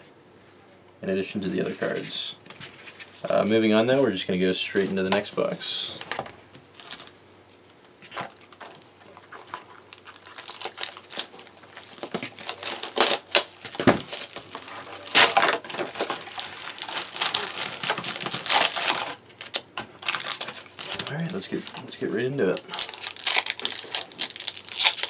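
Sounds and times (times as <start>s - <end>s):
wrapping and cardboard tearing: 9.1s - 25.0s.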